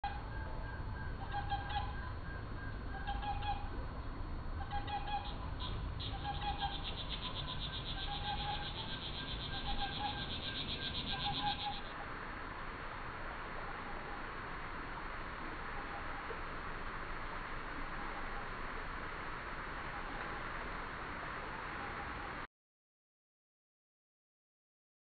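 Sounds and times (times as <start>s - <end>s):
pitched-down call: 4.6s - 11.9s.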